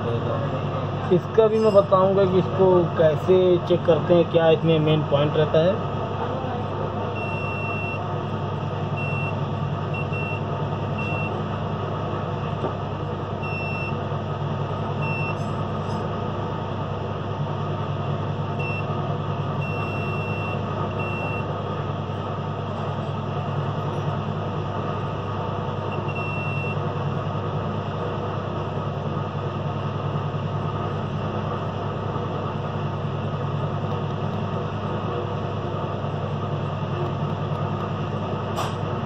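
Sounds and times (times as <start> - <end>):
low background hum: 0.0 - 39.0
multimeter short high beeps: 7.2 - 8.0, 9.0 - 9.4, 10.0 - 10.4, 13.4 - 14.0, 15.0 - 15.4, 19.6 - 21.5, 25.9 - 26.8.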